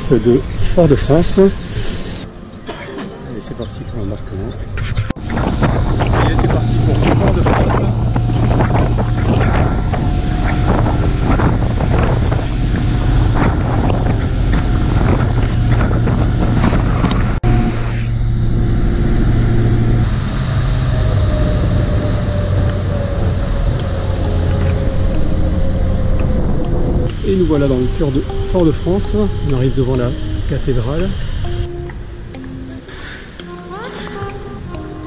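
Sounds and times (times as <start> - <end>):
ferry engine droning: 0.0 - 35.0
water noise: 0.0 - 35.0
wind buffeting microphone: 3.3 - 32.4.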